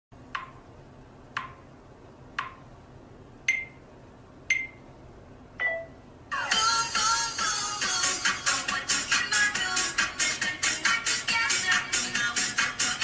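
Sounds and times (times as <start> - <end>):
camera countdown beeps: 3.5 - 3.8, 4.5 - 4.9, 5.6 - 6.0.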